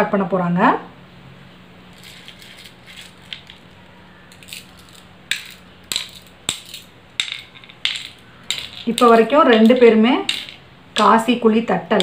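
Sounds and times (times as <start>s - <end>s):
shells clicking on wooden board: 4.3s - 11.3s.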